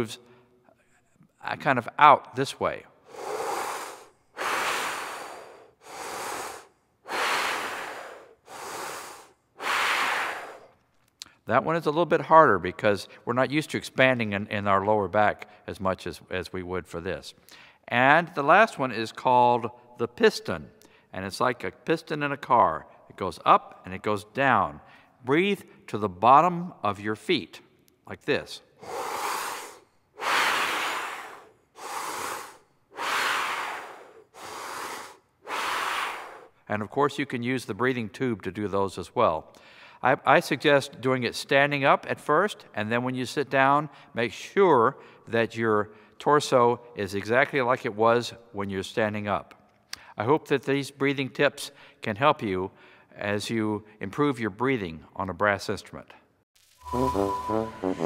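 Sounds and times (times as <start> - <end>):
man breathing deeply: 3.0 - 10.8, 28.8 - 36.6, 39.6 - 40.0.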